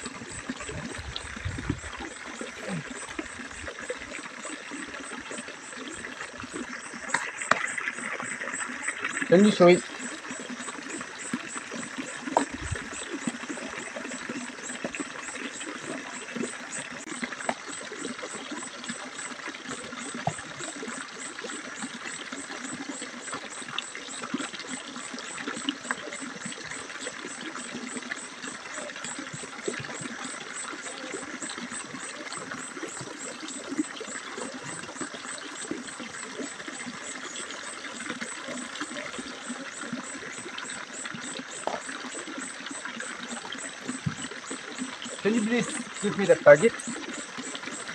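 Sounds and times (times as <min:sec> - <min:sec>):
trickling water: 0:00.0 - 0:47.9.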